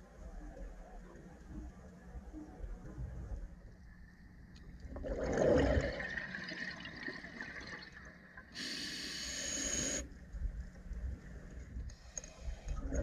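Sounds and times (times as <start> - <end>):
exhaled bubbles gurgling underwater: 4.8 - 8.4
regulator inhalation hiss: 8.6 - 10.0.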